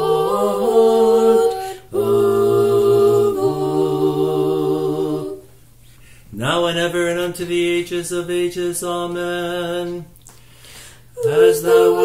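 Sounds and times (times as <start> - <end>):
choir singing a cappella chant: 0.0 - 5.5, 11.2 - 12.0.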